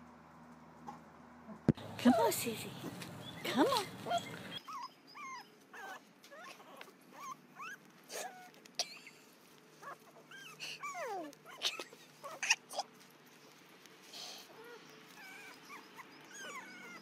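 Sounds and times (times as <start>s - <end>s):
puppy whimpering and yipping: 3.8s - 9.1s, 9.8s - 12.9s, 14.4s - 17.0s.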